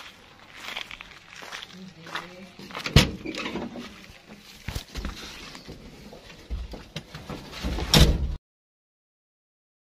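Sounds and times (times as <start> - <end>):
rustling handling noise: 0.0 - 7.9.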